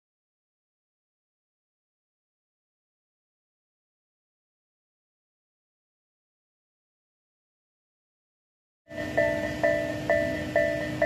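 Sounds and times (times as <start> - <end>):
level-crossing bell ringing: 8.9 - 11.0.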